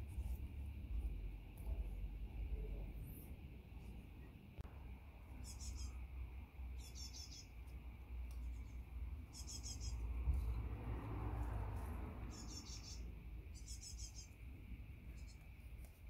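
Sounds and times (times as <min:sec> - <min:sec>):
steady low rumble: 0:00.0 - 0:16.0
small bird chirping: 0:05.3 - 0:10.6, 0:12.2 - 0:15.7.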